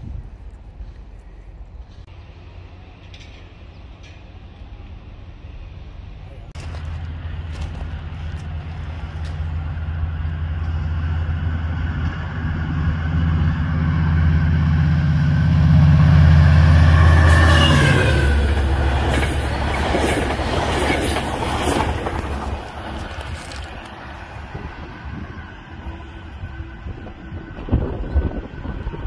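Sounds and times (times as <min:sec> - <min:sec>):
diesel locomotive engine droning: 0:00.0 - 0:29.0
train wheels clicking on rails: 0:17.2 - 0:29.0.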